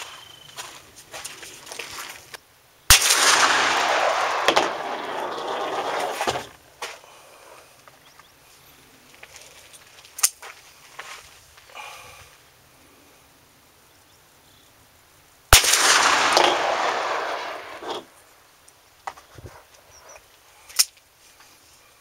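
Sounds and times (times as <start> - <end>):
revolver gunshot: 2.9 - 6.5, 15.6 - 18.1
quieter crack: 2.9 - 6.6, 15.5 - 18.2
loud rumbling echo: 3.0 - 5.9, 15.6 - 17.9.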